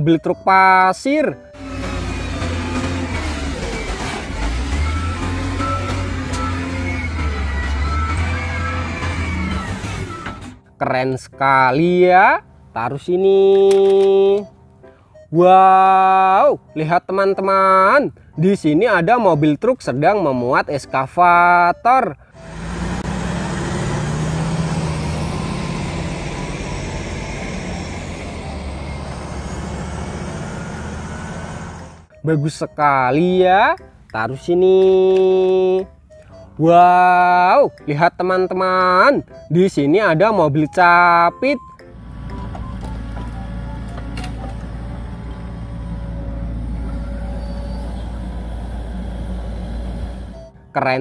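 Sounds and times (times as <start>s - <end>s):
diesel truck engine running: 1.4s - 10.8s, 22.2s - 32.2s, 41.6s - 50.7s.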